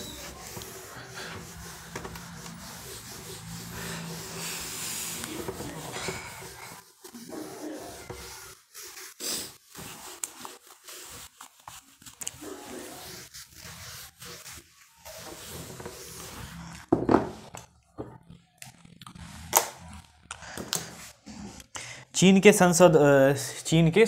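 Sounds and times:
duster rubbing on whiteboard: 0.0 - 17.0.

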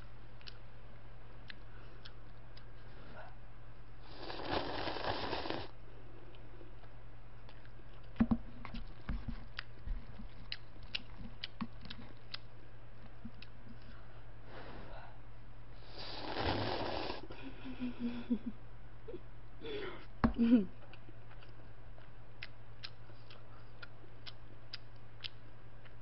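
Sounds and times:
low electrical hum: 0.0 - 26.0
slurping noodles: 4.1 - 5.7, 15.9 - 17.2
chewing and mouth clicks: 6.3 - 13.9, 20.8 - 26.0.

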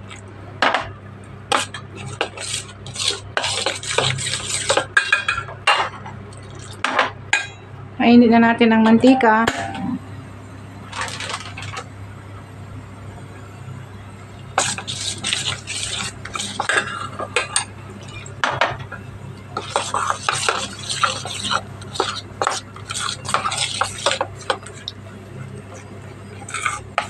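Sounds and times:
metal utensil beating batter in bowl: 19.6 - 25.0.

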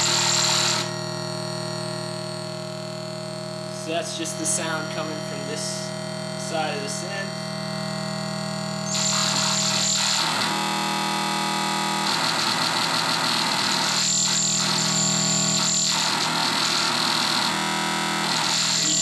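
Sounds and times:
synth drone of steady tones: 0.0 - 19.0
harsh synth hiss: 8.9 - 10.3.

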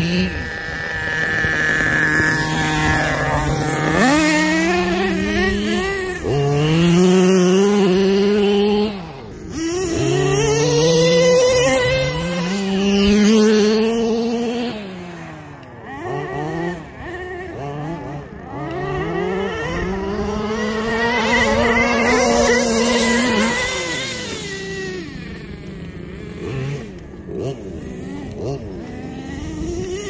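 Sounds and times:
small two-stroke engine revving: 0.0 - 30.0.

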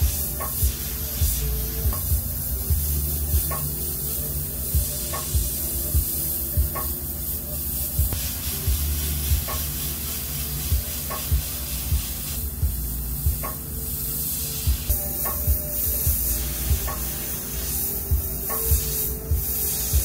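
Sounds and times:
airbrush hissing: 0.0 - 20.0.

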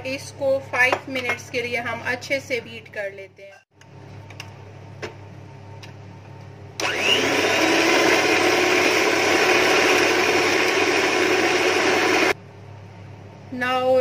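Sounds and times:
electric hand mixer whining: 6.8 - 12.4.

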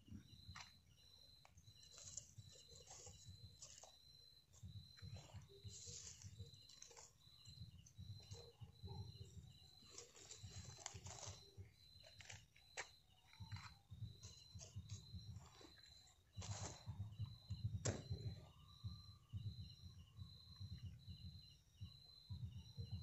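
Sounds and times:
insect chirping: 0.0 - 23.0
rustling of dry leaves and twigs: 1.6 - 8.6, 9.2 - 16.9.

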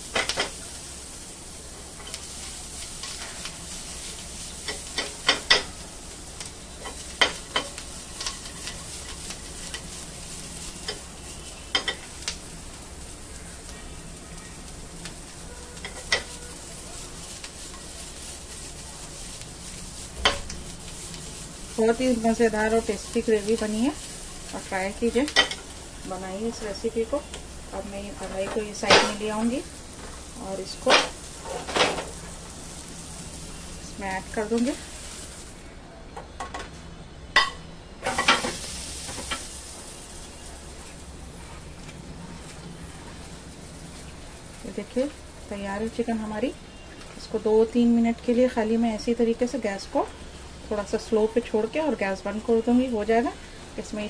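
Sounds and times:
vegetables sizzling in butter: 0.0 - 35.8, 37.4 - 54.0
spatula stirring: 0.5 - 35.6.

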